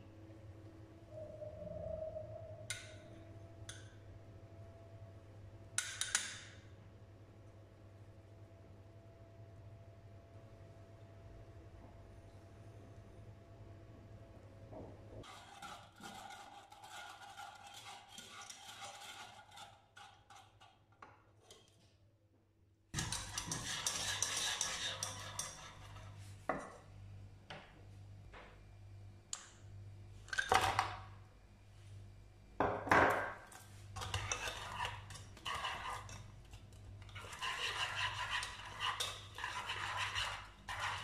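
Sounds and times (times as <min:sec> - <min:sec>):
wire whisk scraping a saucepan: 0:15.2 - 0:20.9, 0:23.0 - 0:26.3, 0:34.0 - 0:41.0.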